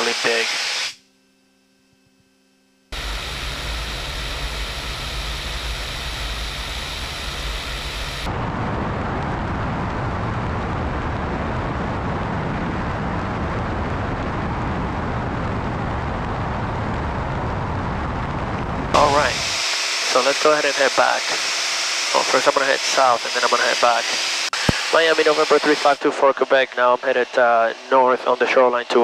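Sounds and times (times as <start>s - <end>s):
plane engine and propeller: 0.0s - 0.8s, 2.9s - 29.0s
wind rushing over camera: 3.0s - 19.4s.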